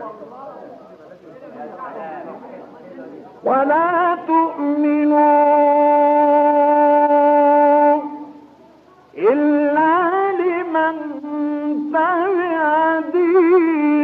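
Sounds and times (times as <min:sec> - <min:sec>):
man chanting melodically: 0:03.4 - 0:08.4, 0:09.2 - 0:14.0.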